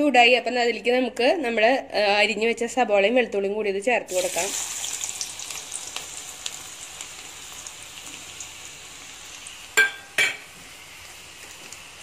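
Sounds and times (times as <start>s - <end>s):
onions sizzling in oil: 4.1s - 12.0s.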